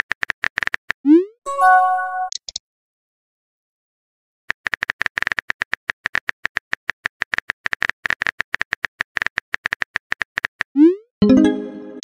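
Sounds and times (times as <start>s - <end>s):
synthesized chime: 1.5s - 2.3s, 11.2s - 12.0s.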